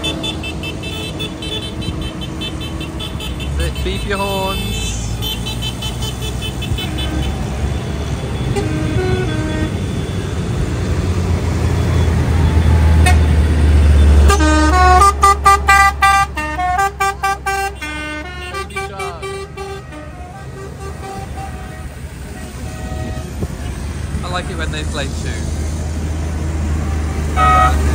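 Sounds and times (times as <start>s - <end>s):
musical vehicle horn tune: 0.0s - 10.5s, 13.0s - 13.3s, 14.0s - 23.8s, 26.8s - 27.9s
tractor engines rumbling past: 0.0s - 27.9s.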